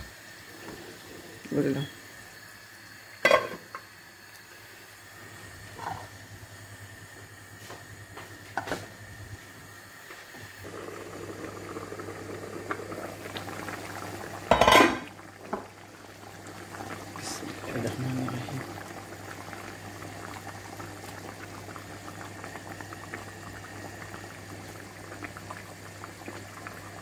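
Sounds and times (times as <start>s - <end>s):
curry bubbling at a simmer: 10.6s - 27.0s.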